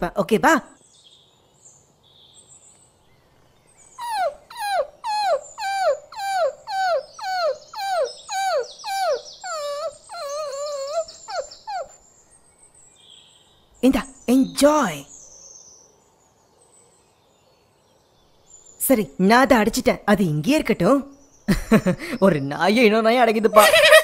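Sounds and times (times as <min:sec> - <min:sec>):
cartoon dog whining: 0:04.0 - 0:12.0.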